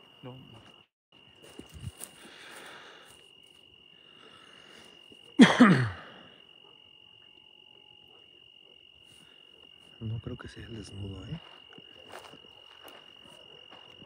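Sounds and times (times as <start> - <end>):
night insects trilling: 0.0 - 14.0.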